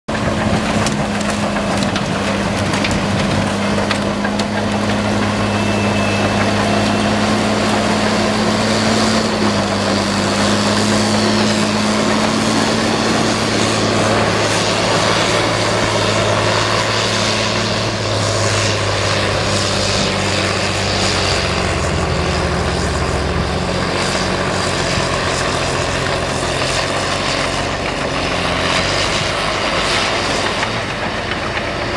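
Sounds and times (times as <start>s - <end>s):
debris crunching and splintering: 0.1s - 20.9s
bulldozer diesel engine: 0.1s - 31.9s.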